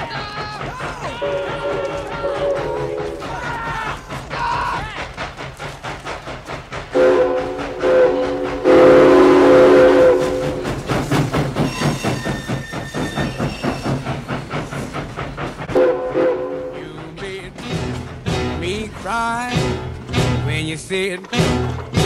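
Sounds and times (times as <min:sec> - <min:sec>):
rhythmic clatter of passing train: 0:00.0 - 0:22.0
steam locomotive whistle: 0:01.1 - 0:03.6, 0:06.9 - 0:10.8, 0:15.7 - 0:17.0.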